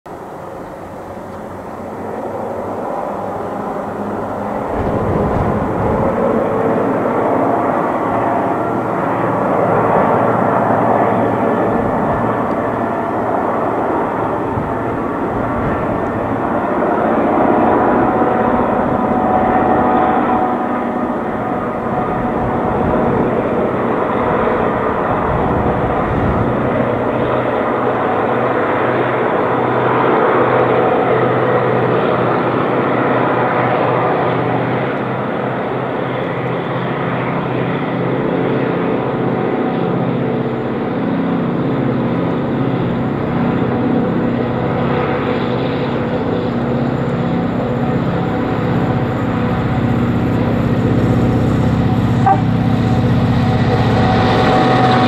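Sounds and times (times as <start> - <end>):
diesel locomotive engine drone: 0.1 - 55.0.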